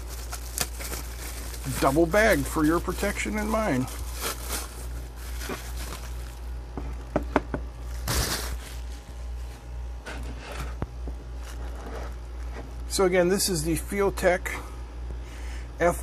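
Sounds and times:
bubble wrap crinkling: 0.0 - 7.1, 7.7 - 9.7, 11.2 - 13.0
steady low hum: 0.0 - 16.0.

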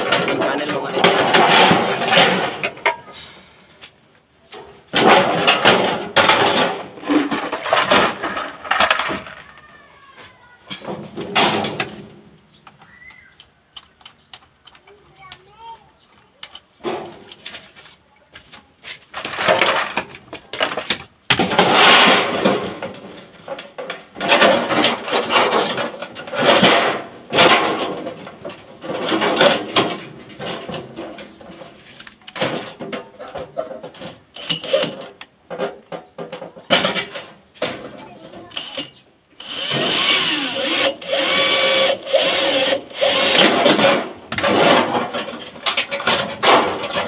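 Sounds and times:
sheet metal being worked by hand: 0.0 - 3.1, 4.5 - 9.3, 19.2 - 47.0.

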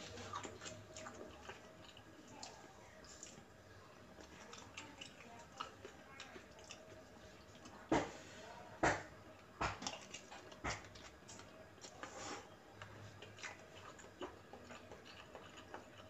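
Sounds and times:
chewing mouth sounds: 0.0 - 3.5, 4.1 - 7.8, 9.6 - 16.0.

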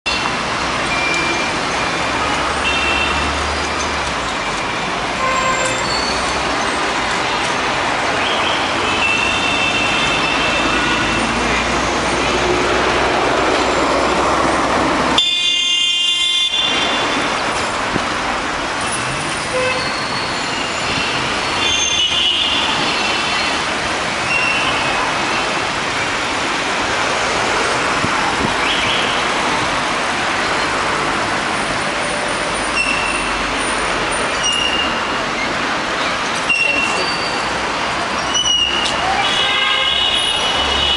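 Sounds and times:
passing cars and scooters: 0.1 - 40.9
car horn toots: 15.2 - 17.0.

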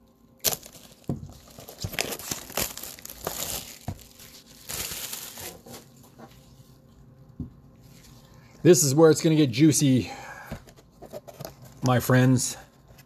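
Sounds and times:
plastic wrap crinkling and tearing: 0.4 - 6.0.

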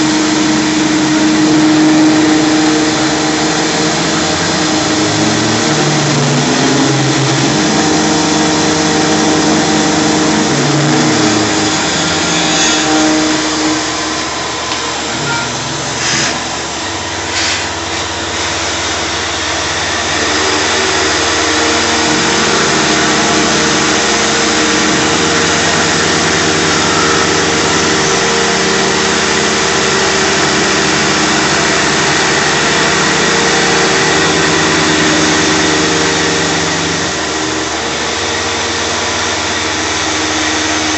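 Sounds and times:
mill machining tones: 0.0 - 40.9
shop vacuum rushing: 0.0 - 40.9.

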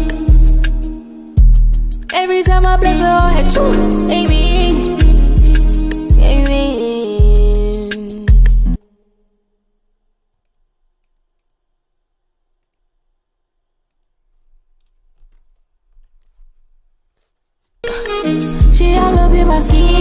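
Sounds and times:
song playback: 0.0 - 8.8, 17.8 - 20.0
computer mouse clicks: 10.4 - 11.6, 12.6 - 12.9.

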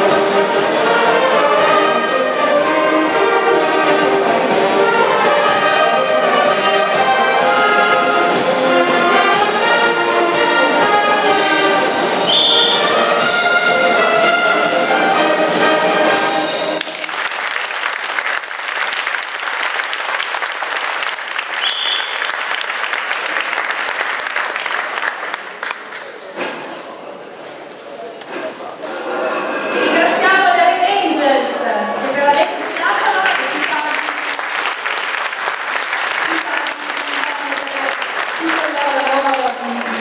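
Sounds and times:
brass band playing a march: 0.0 - 17.0
audience applause: 16.7 - 26.4, 32.0 - 40.0.

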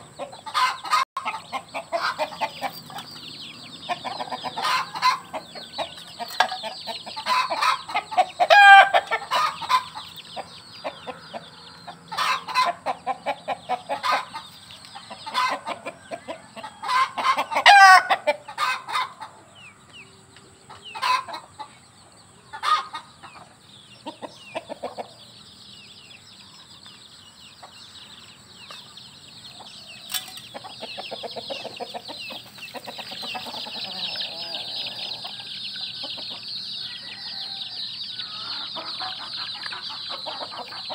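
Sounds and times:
chicken calls: 0.0 - 40.9
chickens clucking: 0.0 - 40.9.

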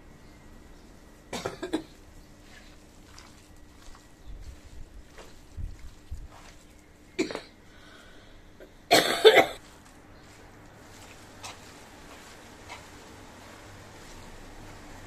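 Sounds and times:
person coughing: 1.3 - 1.9, 7.2 - 7.6, 8.9 - 9.6.

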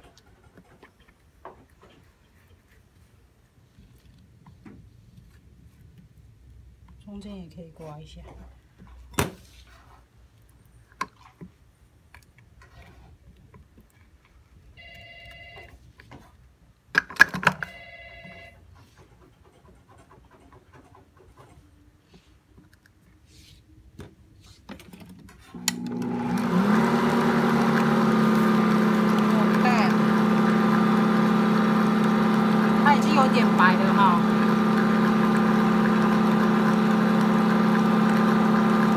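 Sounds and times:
telephone ringing: 14.8 - 15.9, 17.6 - 18.7
stand mixer motor hum: 25.6 - 38.9.

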